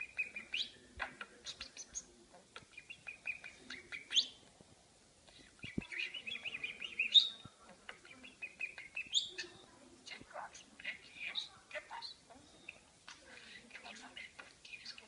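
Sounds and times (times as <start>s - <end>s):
budgerigar chattering warble: 5.9s - 9.5s.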